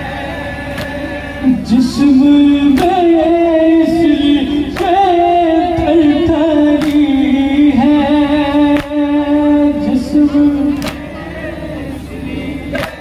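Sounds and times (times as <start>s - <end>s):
lament sung over loudspeakers: 0.0s - 13.0s
hands slapping chests: 0.8s - 1.0s, 2.8s - 3.0s, 6.8s - 7.1s, 8.8s - 9.0s, 10.8s - 11.0s.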